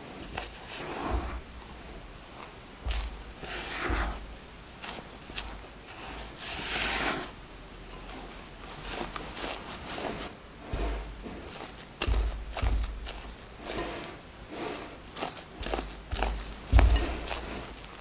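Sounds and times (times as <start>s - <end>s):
dull low bumps: 1.0s - 5.7s, 10.6s - 13.8s, 15.6s - 18.0s
spatula scraping glass bowl: 2.8s - 7.3s, 8.8s - 18.0s.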